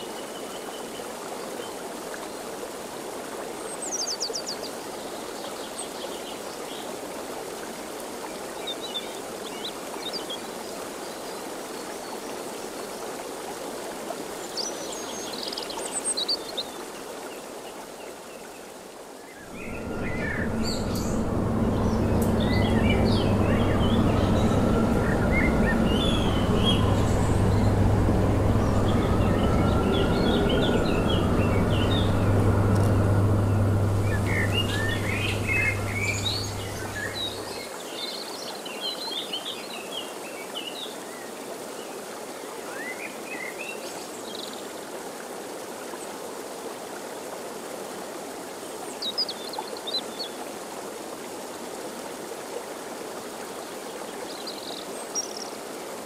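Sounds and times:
steady low hum: 19.4 - 37.6
steady rushing noise: 19.4 - 37.6
small birds chirping: 19.5 - 37.6.

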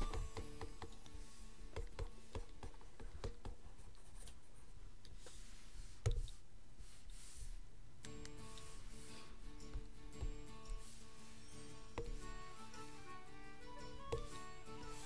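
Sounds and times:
stylus tapping on drawing tablet: 0.0 - 3.6, 9.6 - 11.0, 11.9 - 12.4, 13.9 - 14.4
stylus scratchy strokes: 5.2 - 7.7, 8.4 - 15.0.

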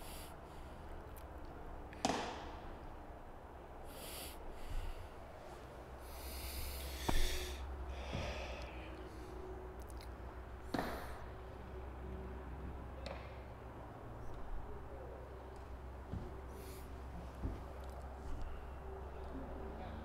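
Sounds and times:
baseball bat crack: 2.0 - 2.8
breathy rushes of noise: 6.0 - 8.7.

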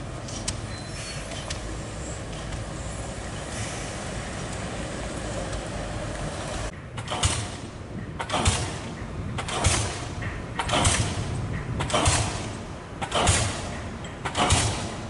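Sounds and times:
truck engine rumble: 0.0 - 15.0.

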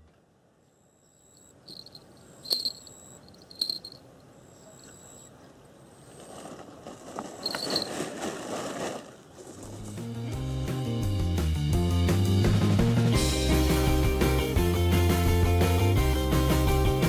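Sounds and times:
small bells jingling: 1.6 - 4.0
rustling: 1.7 - 4.0, 6.0 - 10.0.

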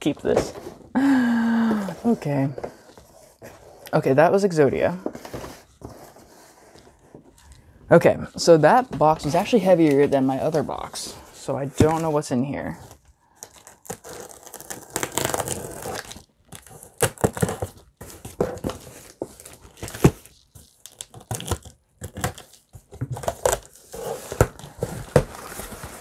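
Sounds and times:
box cutter slitting packing tape: 13.6 - 18.2.

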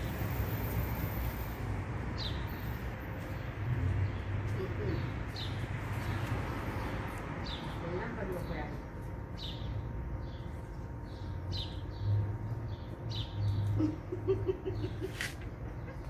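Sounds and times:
bird chirping: 9.4 - 14.0.

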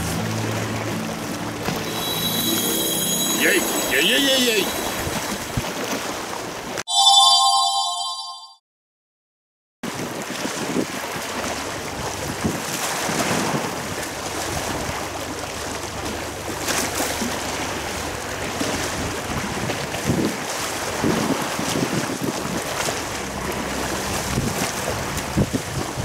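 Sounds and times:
rushing water: 0.0 - 7.1, 9.9 - 26.0
wind noise on microphone: 9.9 - 15.1, 18.6 - 26.0.

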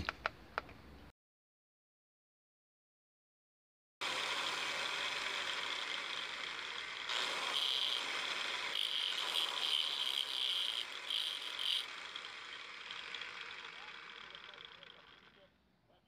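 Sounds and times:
screw grinding hiss: 4.0 - 15.3
grinding wheel whirring: 4.0 - 15.6.

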